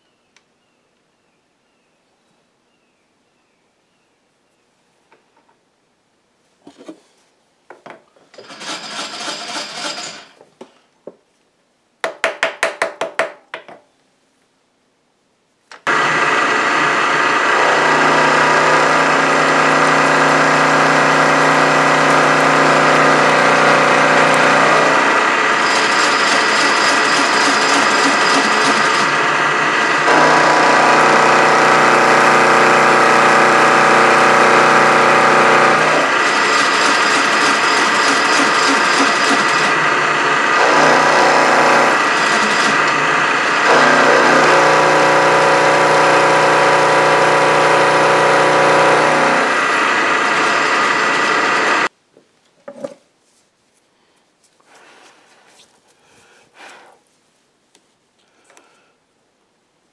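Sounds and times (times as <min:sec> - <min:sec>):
milling machine cutting metal: 0:15.9 - 0:51.9.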